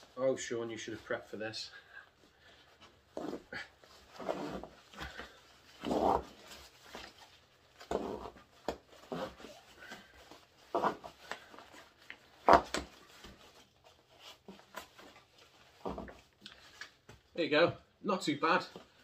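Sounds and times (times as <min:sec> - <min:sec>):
nylon rustling: 0:00.0 - 0:17.4
webbing straps rasping: 0:02.5 - 0:16.9.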